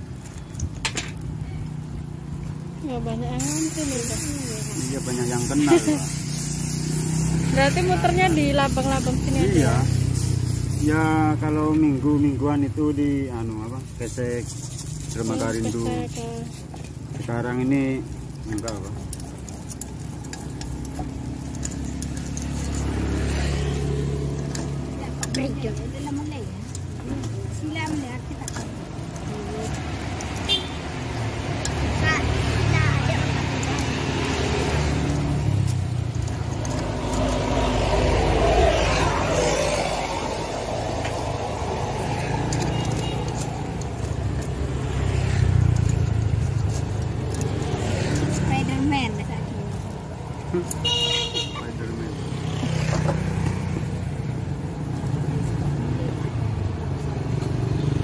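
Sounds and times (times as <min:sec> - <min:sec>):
vehicle engine running: 0:01.4 - 0:12.4, 0:17.9 - 0:51.0
light metal clicks and scrapes: 0:26.6 - 0:30.6.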